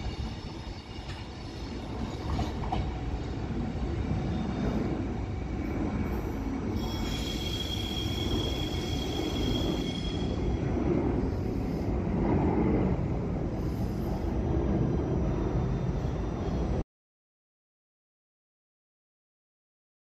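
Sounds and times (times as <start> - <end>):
train rolling over rails: 0.0 - 16.8
high wheel squeal: 6.7 - 10.7.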